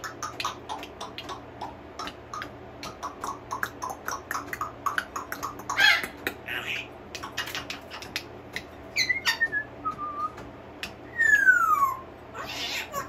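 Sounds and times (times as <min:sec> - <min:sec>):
parrot clicks: 0:07.1 - 0:08.7
parrot whistling: 0:08.9 - 0:10.4, 0:11.1 - 0:13.0.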